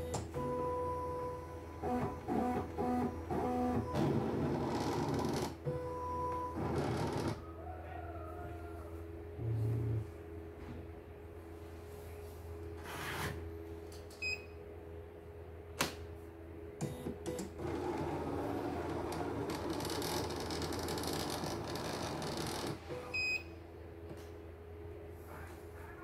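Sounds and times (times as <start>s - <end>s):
low electrical hum: 0.0s - 26.0s
embroidery machine motors buzzing: 1.3s - 7.4s.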